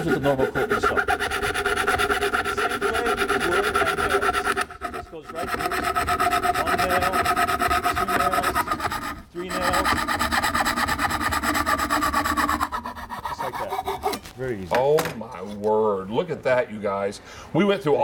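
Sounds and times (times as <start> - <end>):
hand saw cutting wood: 0.0 - 14.3.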